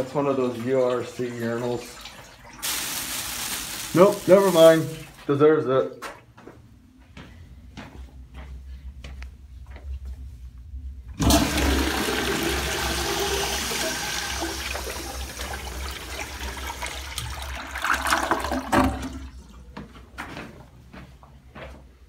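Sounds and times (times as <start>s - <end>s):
toilet flushing: 0.0s - 5.2s, 11.1s - 19.7s.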